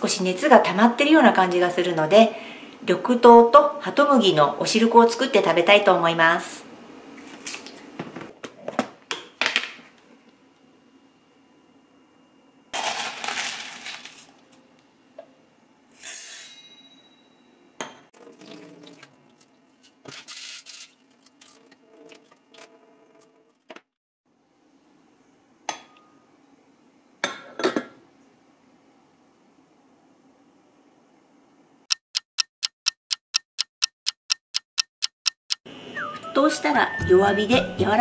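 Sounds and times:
beans rattling and splashing in water: 0:12.8 - 0:14.3, 0:18.2 - 0:22.6.

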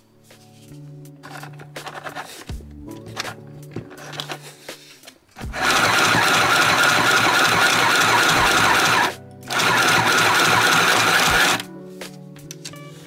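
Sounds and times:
sewing machine running: 0:05.4 - 0:11.6.

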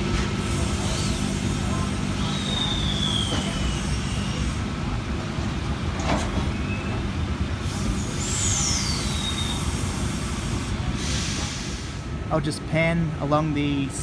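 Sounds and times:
electric train humming: 0:00.0 - 0:14.0.

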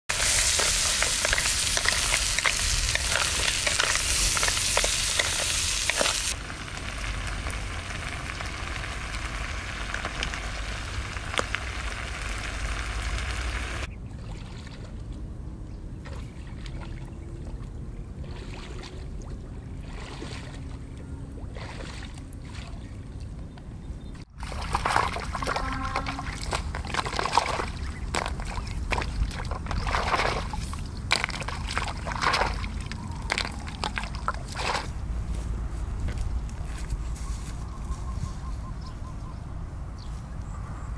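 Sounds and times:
wooden spatula stirring: 0:00.1 - 0:06.3
food sizzling in a frying pan: 0:00.1 - 0:13.9
water splashing and sloshing: 0:00.1 - 0:36.3.

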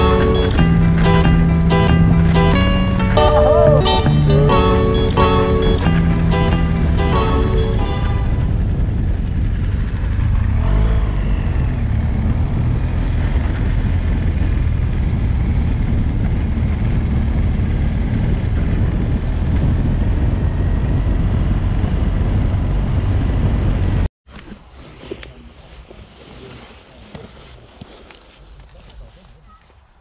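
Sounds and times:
motorbike engine rumble: 0:00.0 - 0:29.9
wind on microphone: 0:07.8 - 0:24.0.

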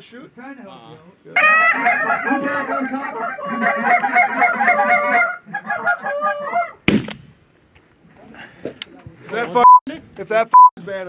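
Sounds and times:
geese honking and clucking: 0:01.4 - 0:06.8.

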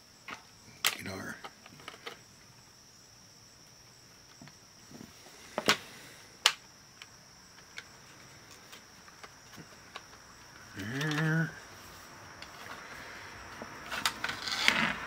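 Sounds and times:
plastic case clicking: 0:08.7 - 0:11.4.

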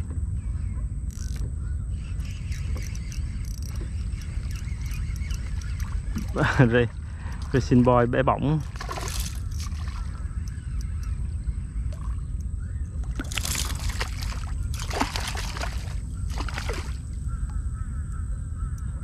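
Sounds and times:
low wind rumble: 0:00.0 - 0:19.0
spinning reel being wound: 0:02.2 - 0:06.2.

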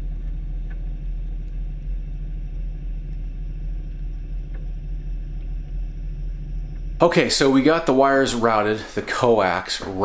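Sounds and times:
faint clicks: 0:00.0 - 0:07.0
faint hum: 0:00.0 - 0:10.0
low rumble: 0:00.0 - 0:10.0.

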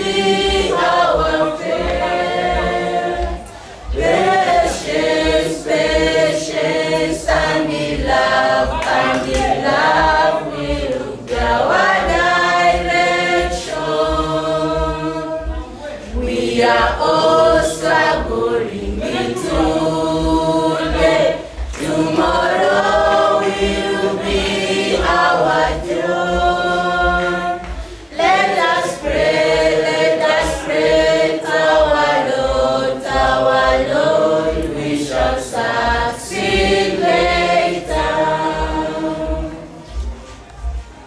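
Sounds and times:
choir singing a cappella: 0:00.0 - 0:41.0.

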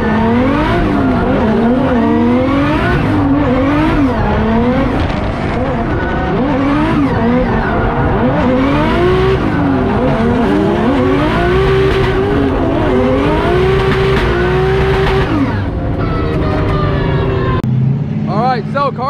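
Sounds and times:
car engine revving: 0:00.0 - 0:19.0.

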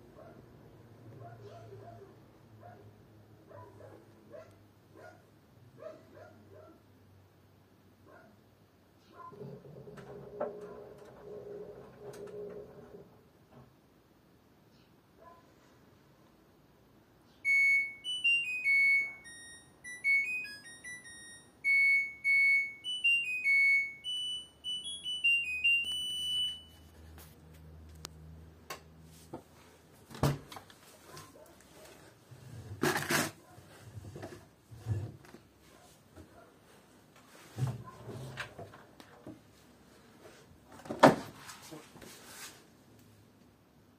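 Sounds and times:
washing machine beeping melody: 0:17.4 - 0:26.9.

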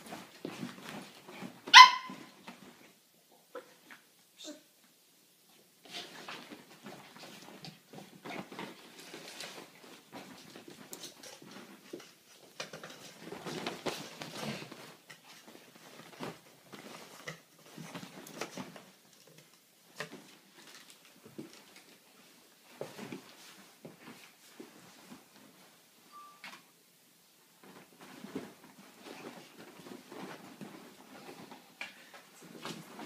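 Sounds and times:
rustling of duvet: 0:00.0 - 0:02.9, 0:13.1 - 0:19.1, 0:27.4 - 0:33.0.

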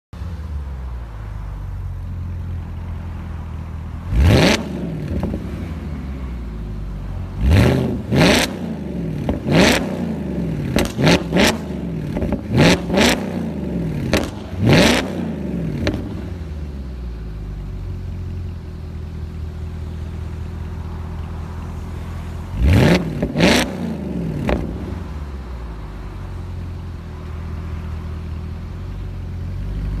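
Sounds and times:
car engine idling: 0:00.2 - 0:30.0
engine revving in sharp blips: 0:04.1 - 0:05.7, 0:07.4 - 0:16.4, 0:22.5 - 0:25.1.

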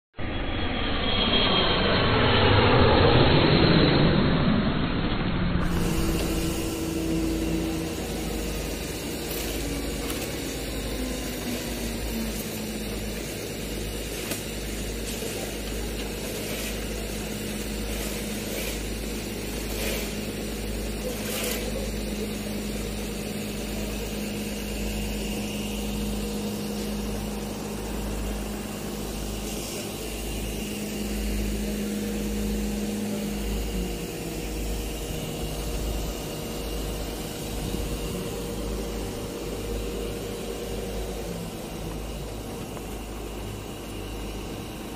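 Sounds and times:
construction machinery engines running: 0:00.2 - 0:44.9.

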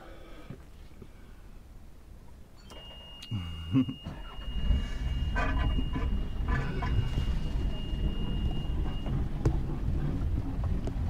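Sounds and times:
low engine-like rumble: 0:00.0 - 0:11.0
thin high tone: 0:02.6 - 0:09.0
low chuckle: 0:03.2 - 0:04.5.

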